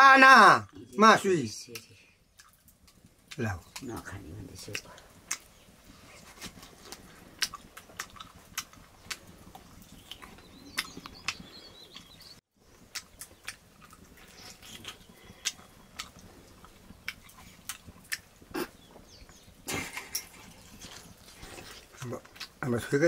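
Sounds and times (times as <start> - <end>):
chewing and lip-smacking: 2.4 - 3.9, 4.7 - 22.6.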